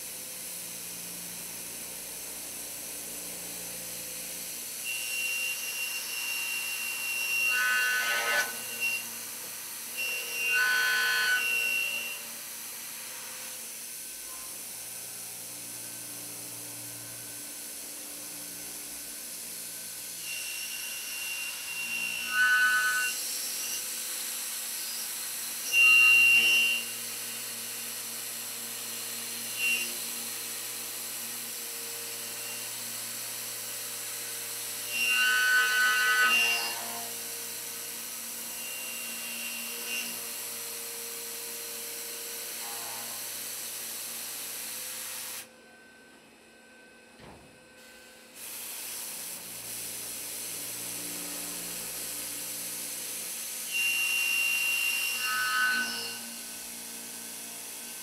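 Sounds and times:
milling machine hum: 0.4s - 34.9s.

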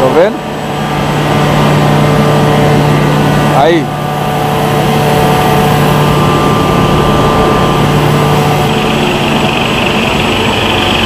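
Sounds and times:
machines humming: 0.0s - 11.0s
high machine hiss: 4.7s - 11.0s.

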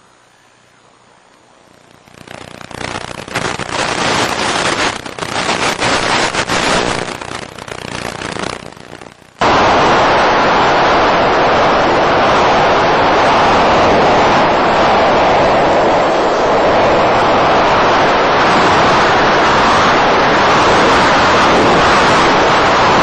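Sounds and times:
crackling radio static: 0.0s - 23.0s
loud steady rushing noise: 0.8s - 23.0s.

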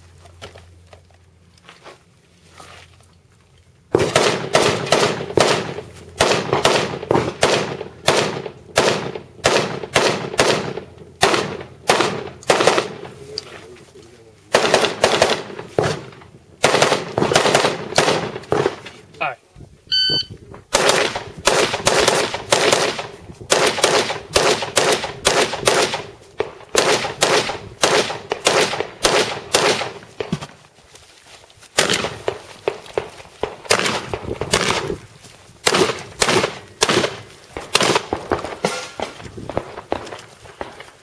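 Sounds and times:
rapid gunshots: 3.9s - 13.1s, 14.5s - 18.8s, 20.7s - 30.0s, 31.8s - 35.0s, 35.6s - 40.8s.

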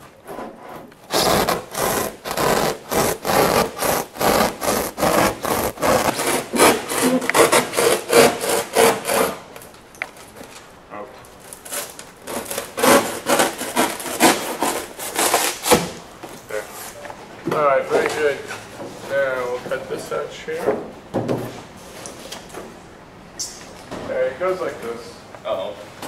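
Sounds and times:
hand saw cutting foam board: 0.2s - 9.4s, 11.7s - 16.0s.

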